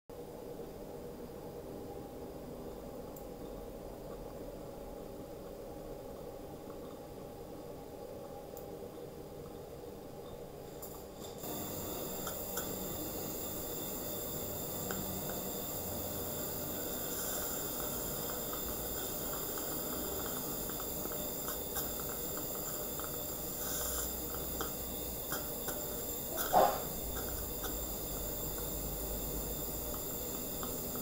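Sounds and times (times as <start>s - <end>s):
suction hiss: 10.8s - 31.0s
faint clicks and slurps: 17.0s - 31.0s.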